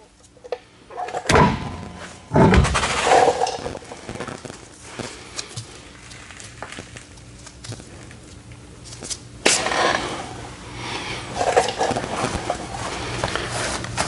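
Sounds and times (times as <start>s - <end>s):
rolling stool on concrete floor: 0.0s - 4.6s, 8.9s - 10.5s, 11.2s - 14.0s
low steady hum: 0.0s - 14.0s.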